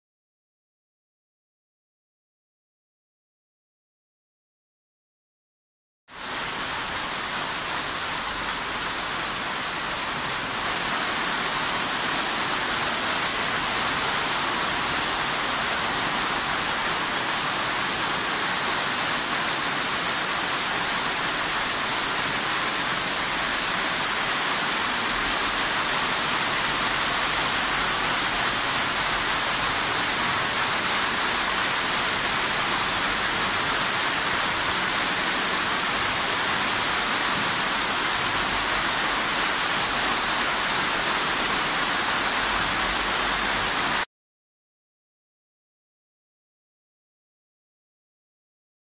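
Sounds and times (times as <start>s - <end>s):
heavy rain pouring onto a tent: 6.1s - 44.1s.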